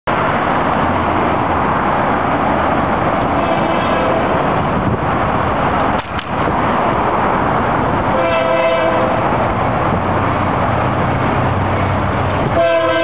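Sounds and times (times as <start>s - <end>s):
freeway traffic noise: 0.0s - 13.0s
distant locomotive horn: 3.3s - 4.6s, 8.0s - 9.4s, 12.4s - 13.0s.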